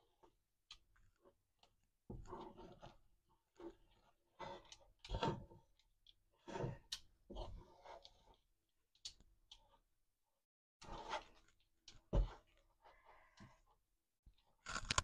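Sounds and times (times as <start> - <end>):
spatula scraping a frying pan: 10.8 - 11.5.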